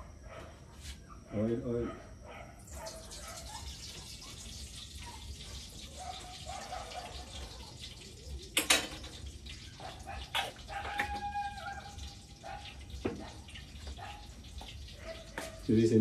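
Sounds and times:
oil sizzling in a wok: 2.8 - 9.9, 11.2 - 15.0
metal pot clanking against pan: 8.5 - 9.2.

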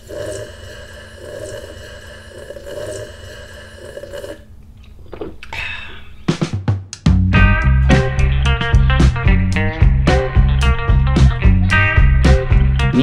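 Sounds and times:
guitar music: 7.3 - 13.0.

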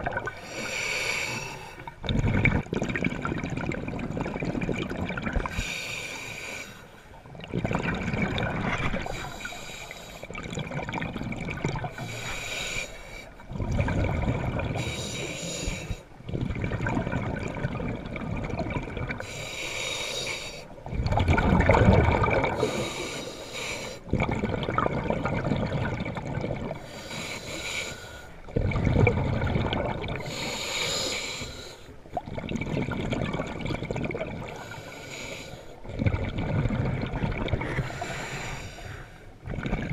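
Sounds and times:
bubbling exhale underwater: 0.0 - 0.5, 1.4 - 5.7, 7.3 - 9.4, 10.3 - 12.1, 13.4 - 15.0, 16.2 - 19.3, 20.8 - 23.1, 24.1 - 26.9, 28.5 - 30.4, 32.2 - 34.6, 35.8 - 38.2, 39.4 - 39.9
hissing regulator inhale: 0.4 - 1.9, 5.5 - 7.1, 9.1 - 10.4, 11.9 - 13.4, 14.8 - 16.1, 19.2 - 20.7, 22.6 - 24.1, 26.8 - 28.4, 30.2 - 32.0, 34.5 - 35.8, 37.6 - 39.4.

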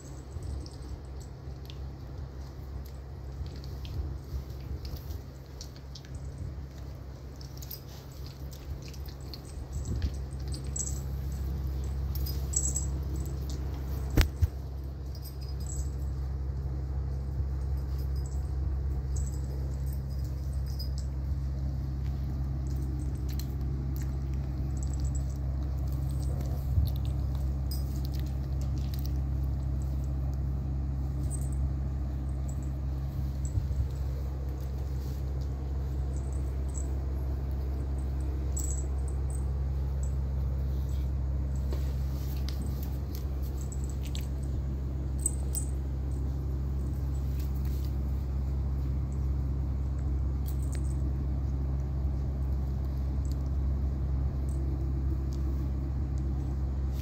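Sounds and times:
collar charms jingling: 0.0 - 16.4, 17.5 - 30.4, 31.0 - 49.3
steady low hum: 0.0 - 57.0
puppies scuffling: 17.1 - 51.6.

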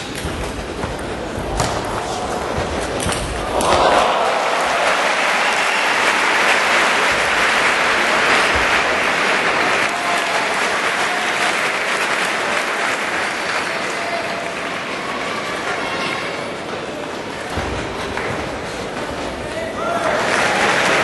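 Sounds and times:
arena crowd applauding: 3.4 - 16.6, 19.7 - 21.0.

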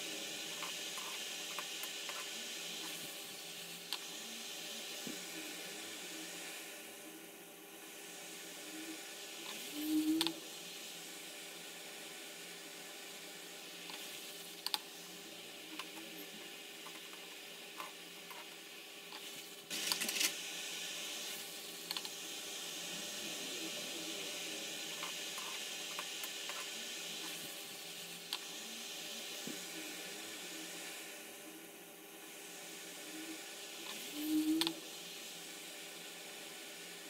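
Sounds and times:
dough sizzling in hot oil: 0.0 - 37.0
oil crackling and popping: 16.8 - 20.4.

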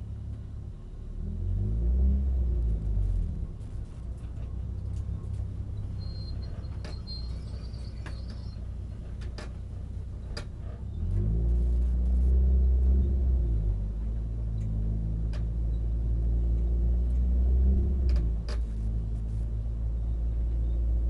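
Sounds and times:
car engine humming: 0.0 - 21.0
faint high squeak: 5.1 - 9.6.

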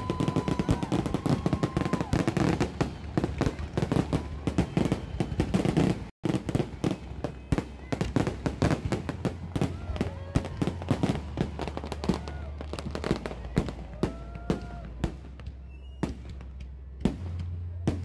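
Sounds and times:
fireworks bangs and crackles: 0.0 - 18.0.

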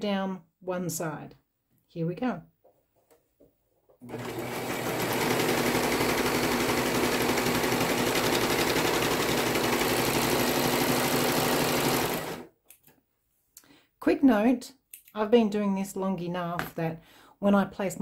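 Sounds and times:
serger sewing machine stitching: 4.0 - 12.5.

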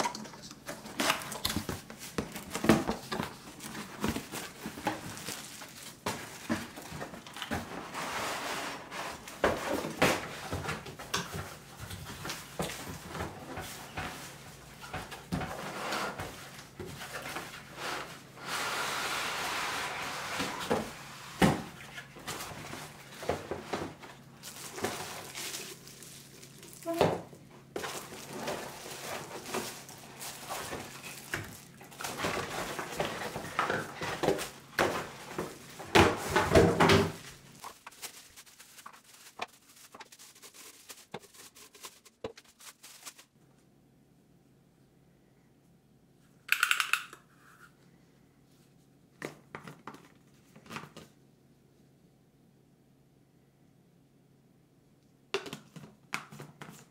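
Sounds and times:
plastic wrap crinkling: 0.8 - 7.5, 23.9 - 27.0, 27.7 - 43.4.

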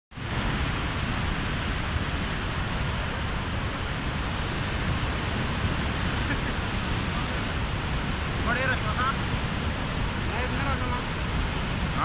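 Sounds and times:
flooded river rushing: 0.2 - 12.0.

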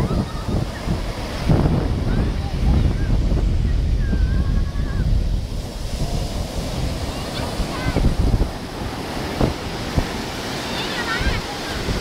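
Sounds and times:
surf breaking on beach: 0.0 - 12.0
wind buffeting microphone: 0.0 - 12.0.

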